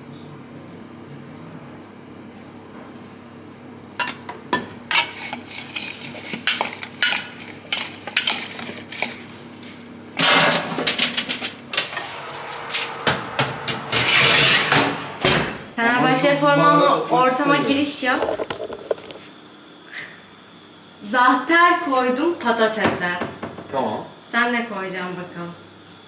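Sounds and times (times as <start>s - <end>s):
steady low hum: 9.0s - 19.9s.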